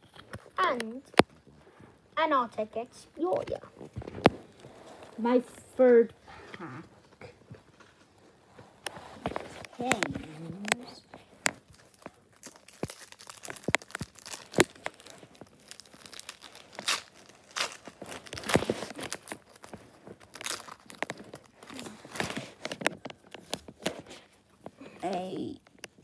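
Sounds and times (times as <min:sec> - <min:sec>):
cards rustling and clicking: 0:07.5 - 0:24.8
wrapper tearing and crinkling: 0:08.9 - 0:24.4.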